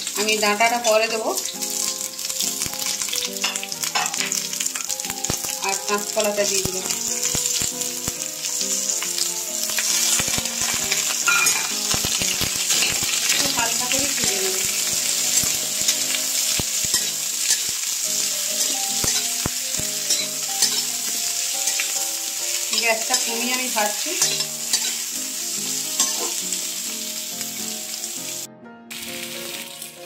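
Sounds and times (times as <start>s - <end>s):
vegetables sizzling in hot oil: 0.0s - 30.0s
metal spatula scraping a pan: 9.7s - 22.0s, 22.7s - 25.1s, 25.9s - 26.4s.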